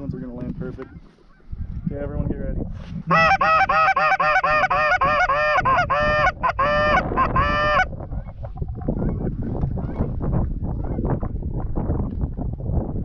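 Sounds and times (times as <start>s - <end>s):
goose call honking: 3.1s - 7.9s.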